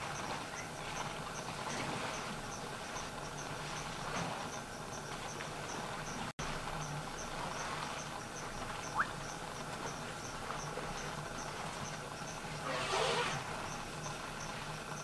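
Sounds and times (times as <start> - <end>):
insect chirping: 4.5 - 15.0.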